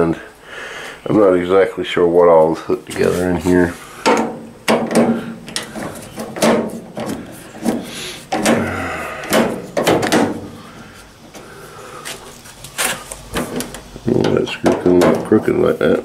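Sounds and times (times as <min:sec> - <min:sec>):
knocks on sheet-metal cabinet: 0:04.1 - 0:05.3, 0:06.2 - 0:06.9, 0:08.3 - 0:08.7, 0:09.3 - 0:10.5.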